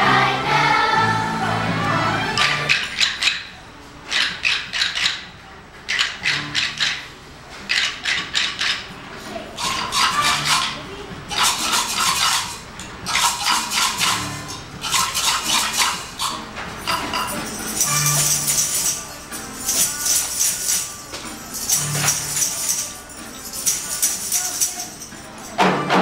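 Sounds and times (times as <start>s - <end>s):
rhythm sticks clicking: 4.1s - 5.3s, 5.9s - 7.1s
tambourines rattling: 9.6s - 25.9s.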